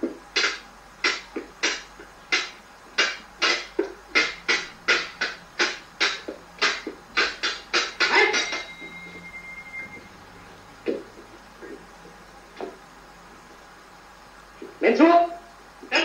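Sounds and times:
sharp ringing knocks: 0.4 - 10.1.

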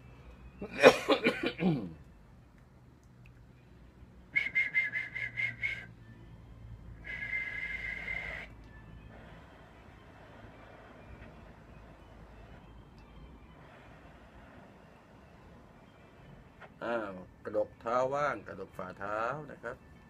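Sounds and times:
man whistling into telephone: 4.3 - 6.1, 7.0 - 8.6.

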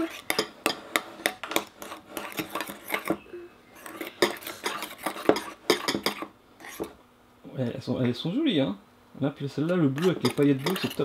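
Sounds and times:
spoons clinking against bowls: 0.0 - 1.6, 3.8 - 6.8, 10.0 - 11.0.

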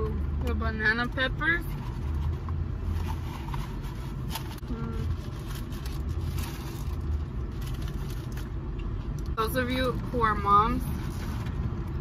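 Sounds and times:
car interior engine rumble: 0.0 - 12.0
food rustling and eating: 1.7 - 9.2.

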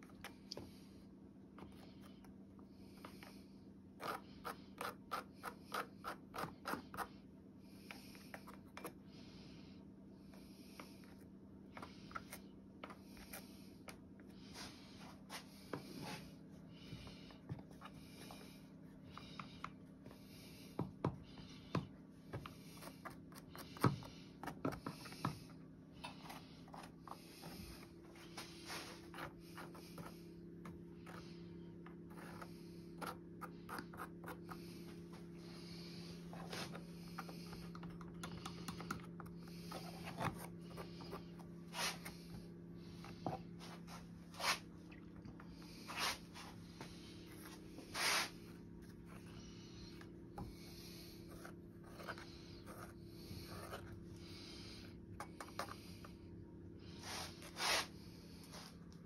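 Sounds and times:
steady low hum: 0.0 - 59.0.

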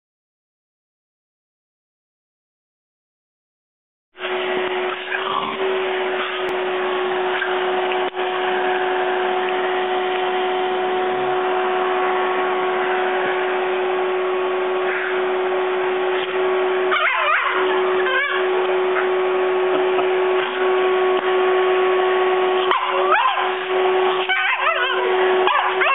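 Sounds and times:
vacuum cleaner running: 4.2 - 25.9
dog crying: 16.9 - 19.2, 22.6 - 25.9.

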